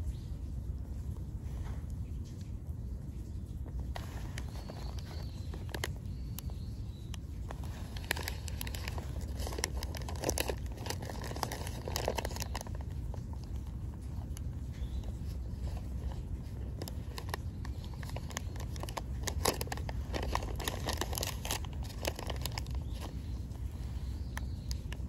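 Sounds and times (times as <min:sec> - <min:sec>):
paper wrapper crinkling: 0:03.8 - 0:25.0.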